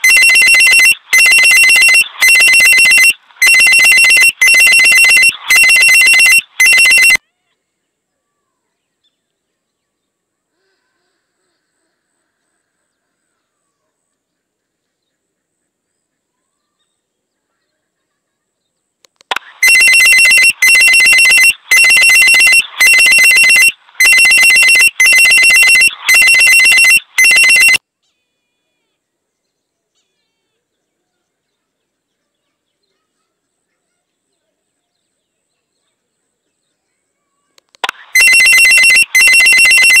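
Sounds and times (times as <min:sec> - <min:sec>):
electronic ringing tone: 0:00.0 - 0:07.2, 0:19.3 - 0:27.8, 0:37.8 - 0:40.0.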